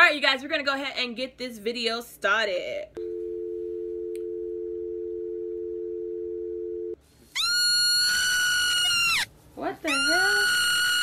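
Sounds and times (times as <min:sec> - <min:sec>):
marmot screaming: 0:07.4 - 0:09.3, 0:09.9 - 0:11.0.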